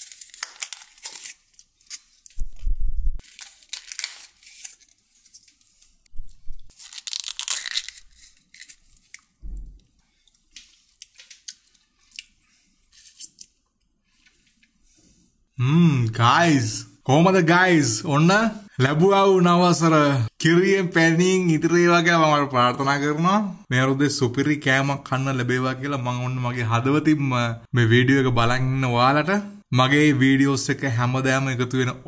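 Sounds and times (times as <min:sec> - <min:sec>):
food packaging tearing and crinkling: 0:00.0 - 0:02.6, 0:03.2 - 0:06.0, 0:06.6 - 0:09.4, 0:10.3 - 0:12.4
dull low thumps: 0:02.4 - 0:03.2.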